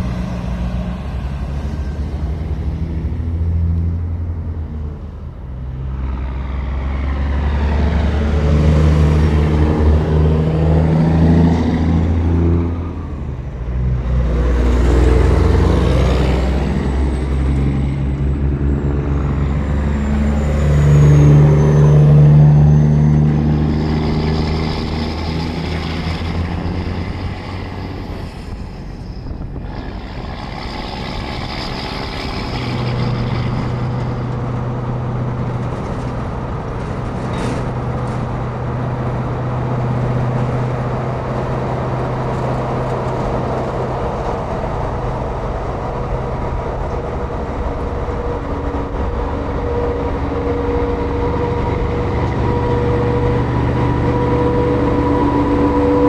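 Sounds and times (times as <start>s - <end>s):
highway engine and tyre noise: 0.0s - 56.0s
trucks passing close by: 0.0s - 56.0s.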